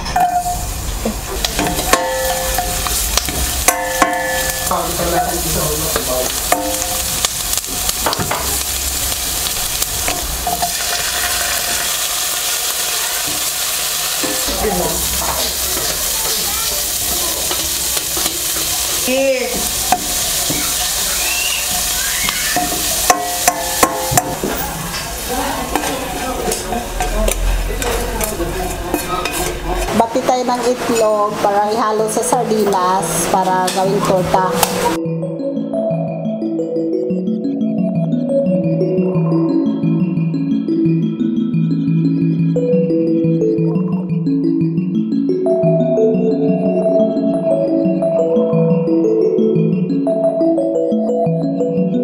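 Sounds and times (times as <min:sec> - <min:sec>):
vegetables sizzling in hot oil: 0:00.4 - 0:35.0
spoon scraping and clicking on pan: 0:25.8 - 0:30.0.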